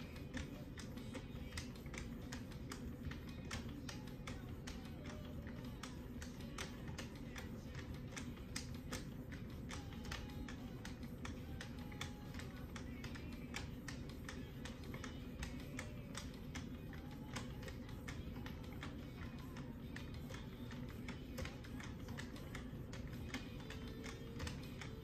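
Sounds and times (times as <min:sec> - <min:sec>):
background music: 0:00.0 - 0:25.0.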